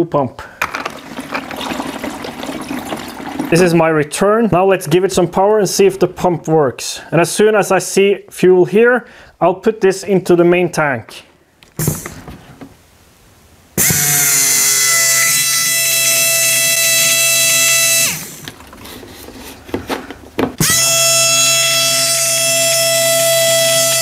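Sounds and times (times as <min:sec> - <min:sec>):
electric fuel pump whining: 0:00.6 - 0:03.7, 0:13.8 - 0:24.0.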